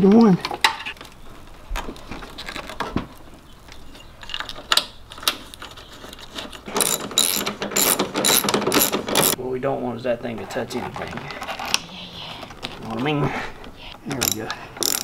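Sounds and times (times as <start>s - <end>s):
ratchet wrench clicking: 6.8s - 9.4s, 14.2s - 15.0s.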